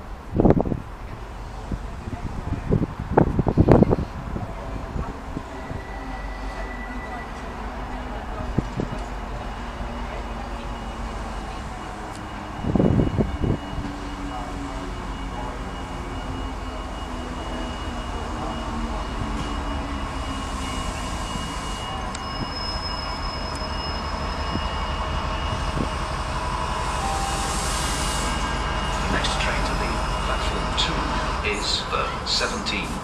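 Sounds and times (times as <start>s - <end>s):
diesel locomotive engine running: 0.0s - 33.0s
thin high tone ringing: 10.1s - 31.5s.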